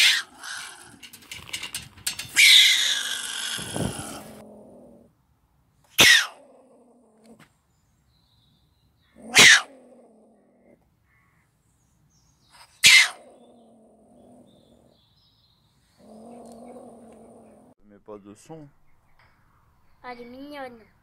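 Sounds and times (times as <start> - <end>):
animal screaming: 0.0 - 1.0, 2.4 - 4.4, 6.0 - 6.4, 9.2 - 9.8, 12.8 - 13.3.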